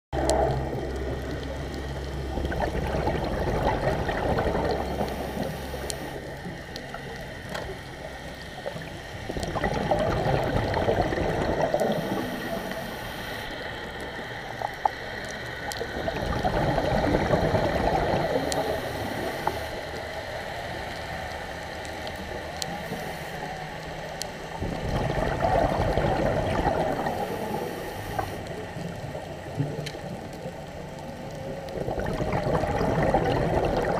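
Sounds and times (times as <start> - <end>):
exhaled bubbles gurgling underwater: 0.1 - 33.9
regulator inhalation hiss: 11.9 - 13.8.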